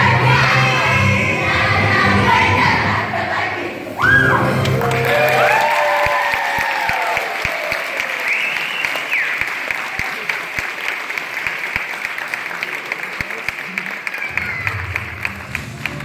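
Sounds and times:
audience cheering: 4.0s - 10.4s, 13.8s - 16.0s
audience applauding: 4.2s - 16.0s.

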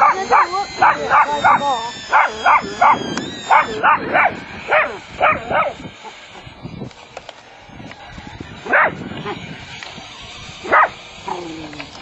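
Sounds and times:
dog yipping: 0.0s - 6.2s, 8.7s - 9.4s, 10.7s - 11.0s.

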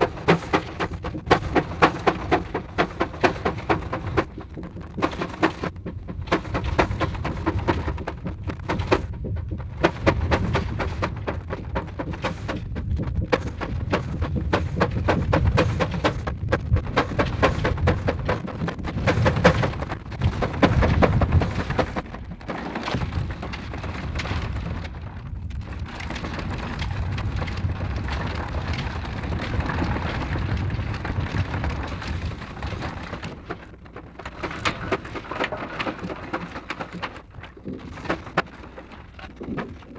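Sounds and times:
steam engine low rumble: 0.0s - 22.4s
film soundtrack crackle: 0.0s - 39.9s.

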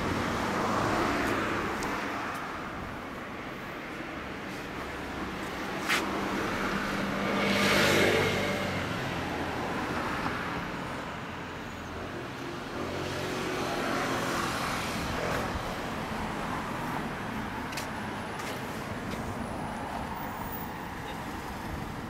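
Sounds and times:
vehicle passing: 4.5s - 10.6s.

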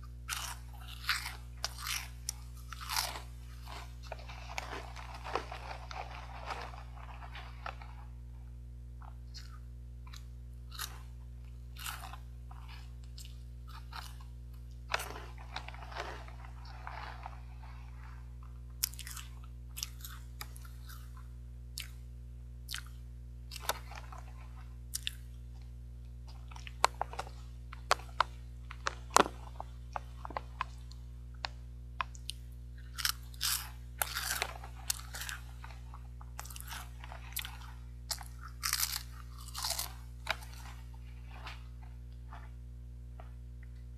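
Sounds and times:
crunching and chewing snack: 0.0s - 43.9s.

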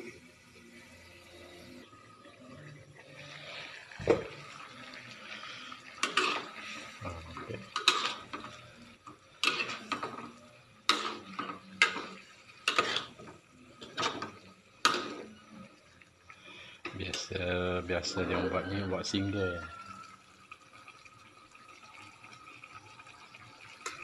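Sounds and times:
metal spatula scraping a wok: 5.3s - 7.0s, 7.6s - 8.7s, 9.3s - 15.4s.

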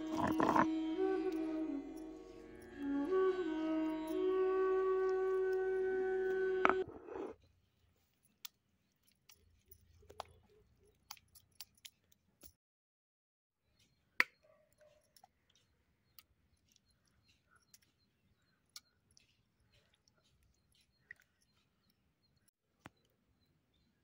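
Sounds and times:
light clicks and taps on stone: 8.2s - 12.6s, 13.8s - 23.2s.

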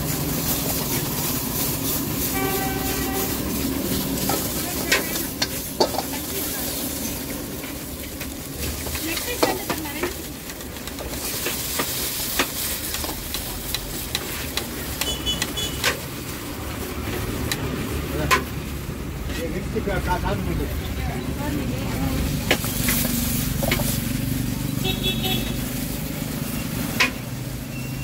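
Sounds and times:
metal utensils scraping a wok: 0.0s - 16.2s, 22.4s - 24.8s, 25.6s - 27.7s
stir-fry sizzling: 0.0s - 28.0s.

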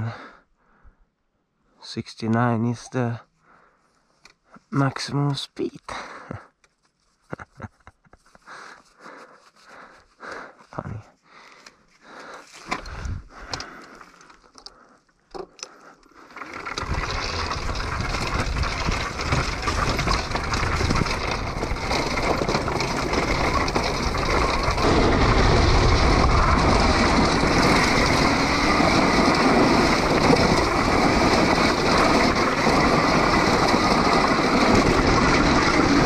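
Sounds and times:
wind rushing on camera: 12.9s - 13.4s, 16.7s - 36.0s
tyres rolling over grass and stones: 16.1s - 36.0s.

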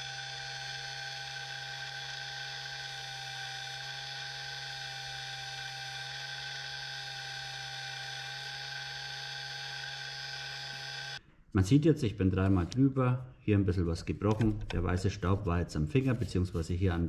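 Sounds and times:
small electric motor whining: 0.0s - 11.2s.

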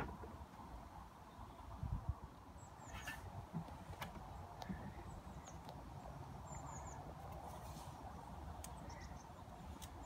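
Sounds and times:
small bird chirping: 2.6s - 3.3s, 8.6s - 10.0s.

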